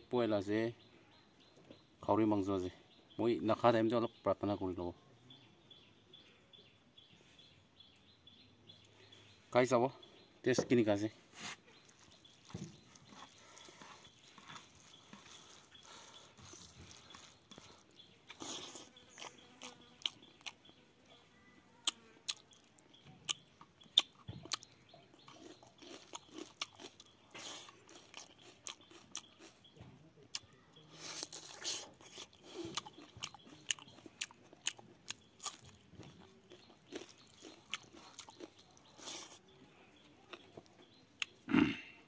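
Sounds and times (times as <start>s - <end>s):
person chewing with mouth smacks: 11.7s - 20.6s, 21.8s - 39.5s.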